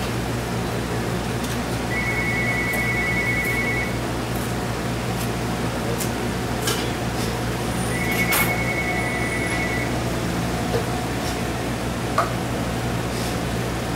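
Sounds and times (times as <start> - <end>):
low machine hum: 0.0 - 13.9
high beep tone: 1.9 - 4.0, 7.8 - 10.0.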